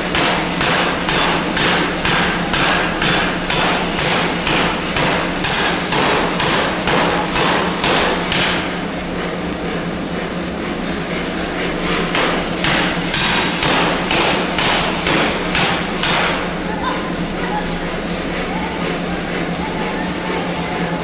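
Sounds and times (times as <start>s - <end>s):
power hammer striking steel: 0.0s - 8.7s, 12.1s - 16.5s
steady machine hum: 0.0s - 21.0s.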